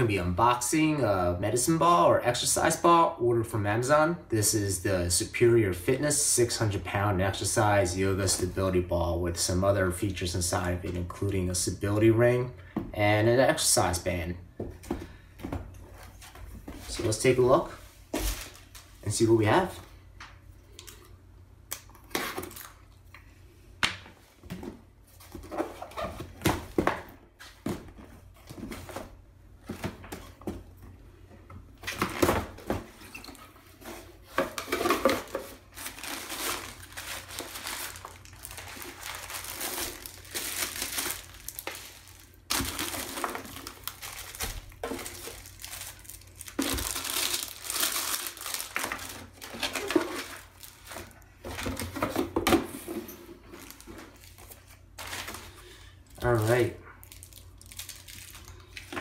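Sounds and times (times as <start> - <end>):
plastic bags crinkling: 33.4 - 52.4, 53.4 - 59.0.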